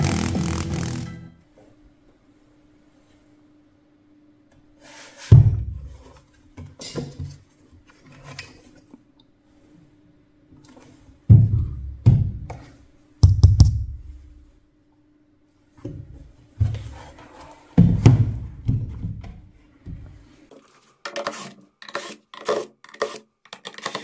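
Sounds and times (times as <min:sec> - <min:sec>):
faint steady hum: 0:00.0 - 0:20.6
speaker cabinet thumping and knocking: 0:17.8 - 0:19.4.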